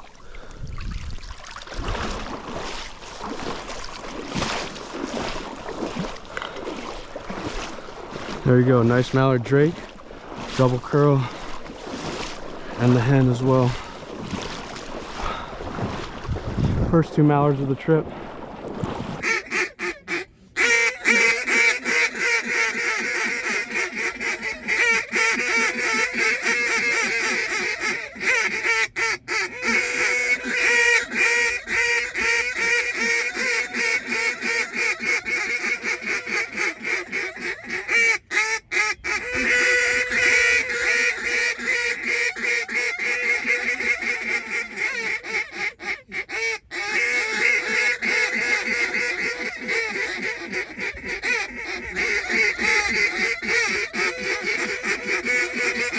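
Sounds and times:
geese honking: 19.2s - 55.9s.

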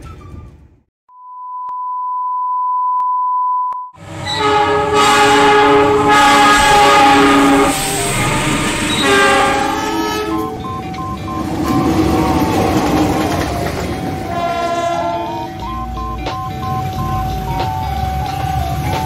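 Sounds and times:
steady test beep: 1.1s - 3.9s, 10.2s - 12.4s, 15.2s - 17.9s
locomotive horn: 4.0s - 15.9s
train rumble: 4.0s - 19.0s.

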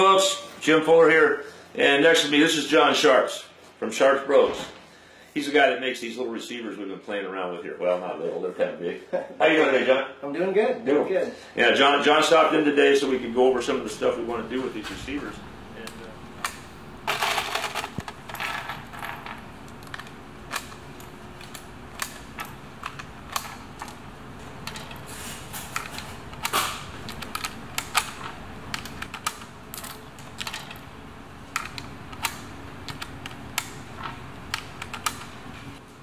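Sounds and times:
steady low hum: 11.3s - 36.0s.

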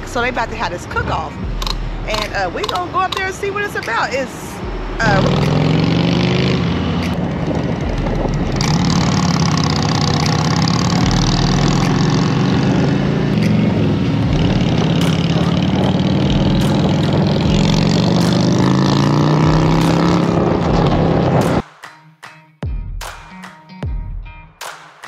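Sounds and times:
motorcycle engine running: 1.2s - 21.6s
wind rushing over microphone: 3.4s - 9.8s, 11.0s - 18.2s.

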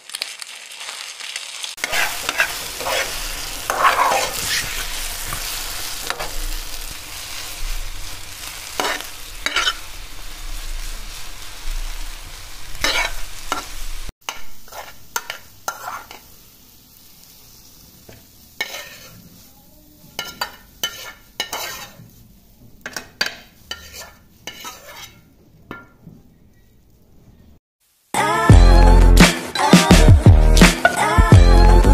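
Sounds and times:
egg sizzling in frying pan: 0.0s - 25.2s
spoon scraping and clinking: 1.8s - 4.8s, 8.8s - 9.9s, 18.6s - 19.2s, 20.2s - 22.0s, 22.9s - 25.9s
spatula scraping pan: 1.8s - 10.0s, 12.8s - 16.3s, 18.2s - 19.5s, 20.2s - 22.2s, 22.8s - 26.0s.

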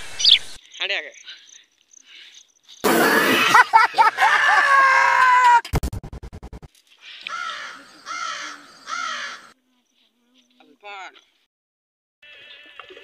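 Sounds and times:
man laughing loudly: 2.9s - 5.6s
harsh bird calls: 7.0s - 9.6s.

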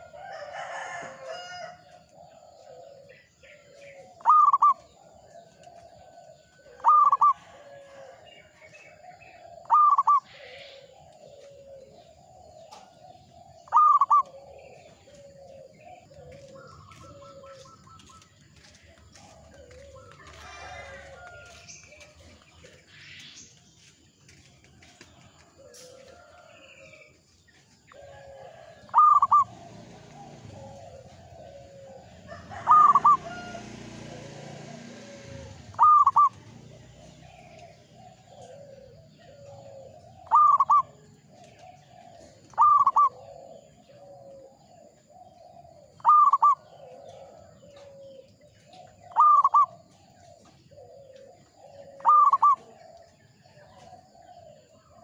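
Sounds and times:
dove cooing: 0.0s - 23.0s, 25.5s - 55.0s.

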